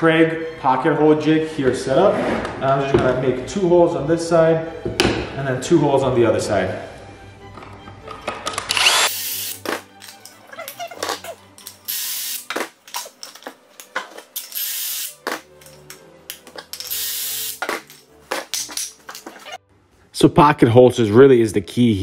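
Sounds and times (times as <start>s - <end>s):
cordless drill boring into wood: 8.7s - 9.6s, 16.9s - 17.6s.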